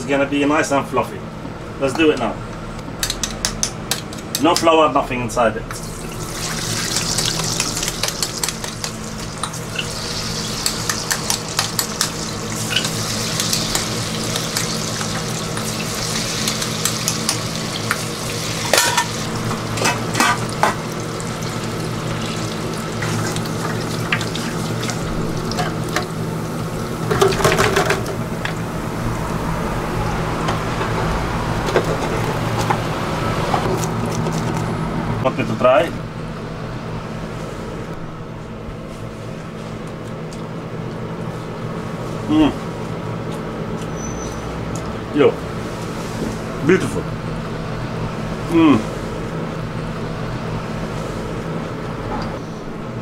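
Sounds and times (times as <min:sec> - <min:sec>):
food deep-frying in hot oil: 0:05.8 - 0:28.0
fryer basket clattering: 0:06.4 - 0:26.1, 0:27.0 - 0:28.6.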